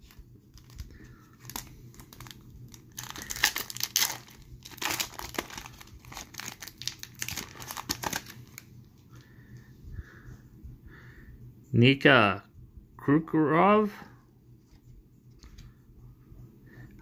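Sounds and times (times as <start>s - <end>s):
foil wrapper crinkling and tearing: 0.0s - 8.7s.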